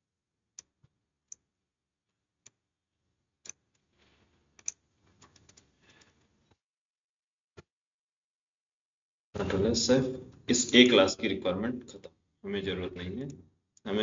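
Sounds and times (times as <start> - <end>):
computer keys clicking: 4.6 - 5.6.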